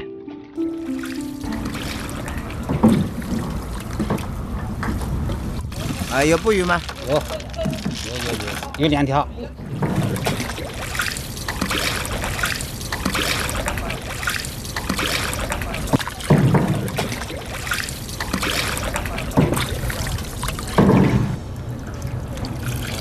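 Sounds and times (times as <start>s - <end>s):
water splashing and dribbling: 1.0s - 8.7s, 9.6s - 23.0s
heavy splashes and knocks: 1.5s - 8.6s, 9.6s - 21.6s.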